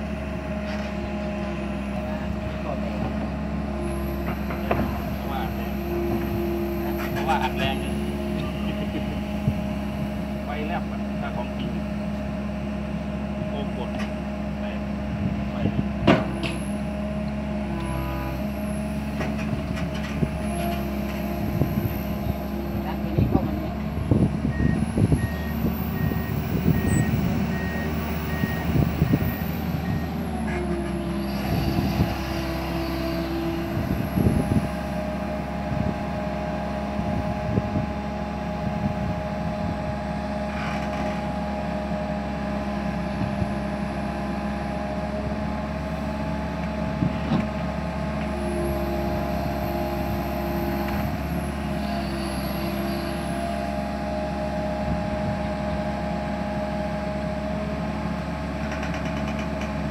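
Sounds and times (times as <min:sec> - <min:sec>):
excavator diesel engine running: 0:00.0 - 0:59.9
hydraulic whine: 0:17.6 - 0:37.9, 0:48.1 - 0:55.2.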